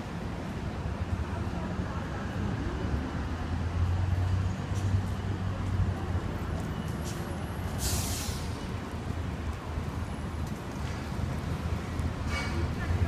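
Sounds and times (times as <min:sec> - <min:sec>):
brief hiss: 0:07.8 - 0:08.6.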